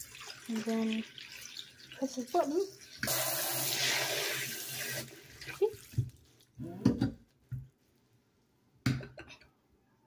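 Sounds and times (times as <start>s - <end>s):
faucet spraying into sink: 0.0s - 5.1s.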